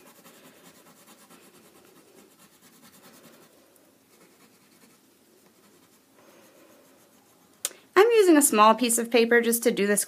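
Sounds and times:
crayon scratching on paper: 0:00.0 - 0:07.6.

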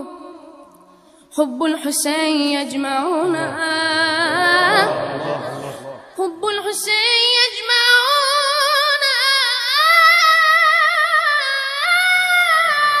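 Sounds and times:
boy singing unaccompanied: 0:01.7 - 0:08.4.

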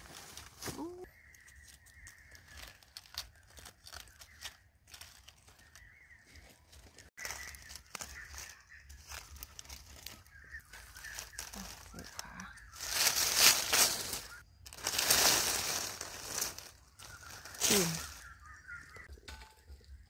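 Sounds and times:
dry leaves crackling underfoot: 0:00.0 - 0:19.8.

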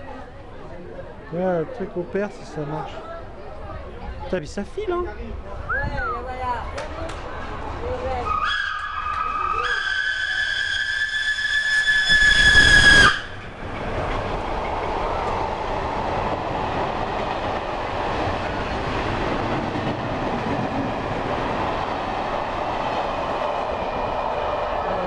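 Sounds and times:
train wheels rumbling on rails: 0:05.7 - 0:25.0
steam locomotive whistle: 0:08.3 - 0:13.4.

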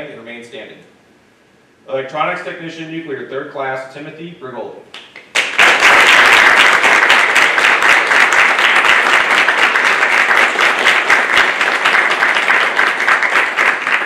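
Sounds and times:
audience applauding: 0:05.3 - 0:14.0.

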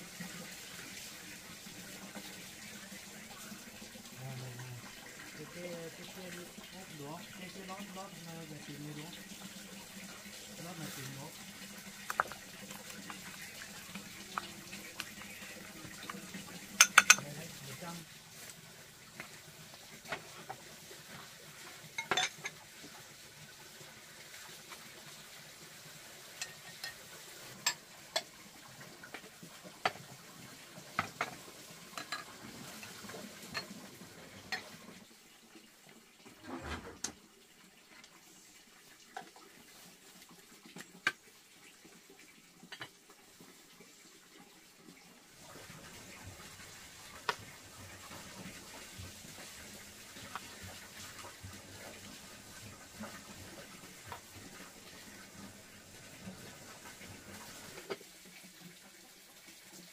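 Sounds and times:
faint running water: 0:00.0 - 0:59.9
dishes and pots clinking: 0:16.0 - 0:17.4, 0:21.9 - 0:22.6, 0:26.4 - 0:27.0, 0:27.6 - 0:28.3, 0:31.0 - 0:32.4, 0:33.5 - 0:33.8.

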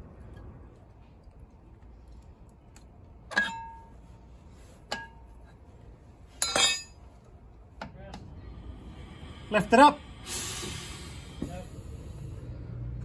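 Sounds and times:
metal clinking: 0:06.4 - 0:07.0.

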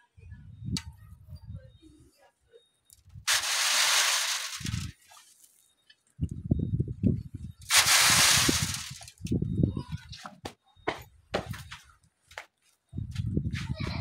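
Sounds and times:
sand hissing through wire sieve: 0:03.3 - 0:05.0, 0:07.7 - 0:09.1
rough low crunching: 0:07.6 - 0:09.4.

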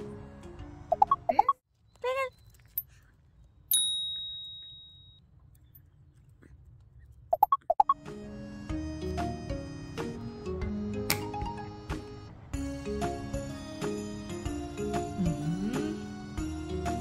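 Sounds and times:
bell ding: 0:03.7 - 0:05.2.

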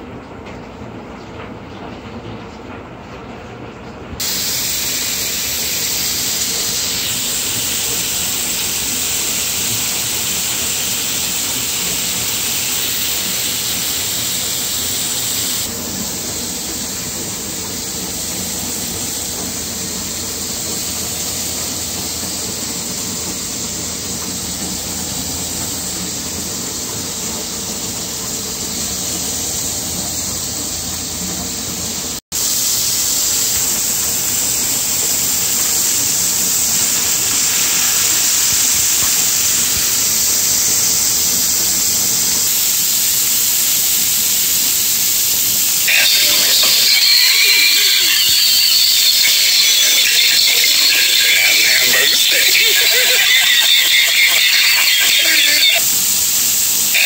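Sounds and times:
steady loud hiss: 0:04.2 - 0:57.0.

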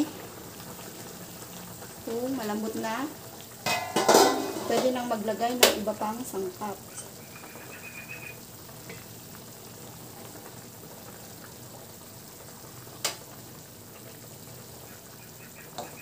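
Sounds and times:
broth bubbling in a pan: 0:00.0 - 0:16.0
utensil clinking against pan: 0:03.6 - 0:05.0.

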